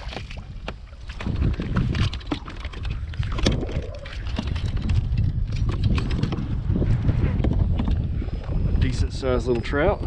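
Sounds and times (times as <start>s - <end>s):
water splashing: 0.0s - 6.6s
wind on microphone: 0.0s - 10.0s.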